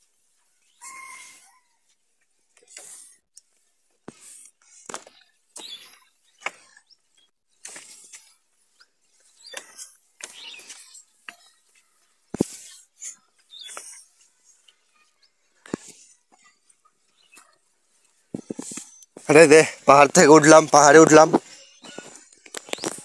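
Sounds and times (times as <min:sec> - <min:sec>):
footsteps on creaking bamboo bridge: 0:00.4 - 0:06.9, 0:07.6 - 0:23.0
footsteps crunching dry leaves: 0:20.6 - 0:23.0.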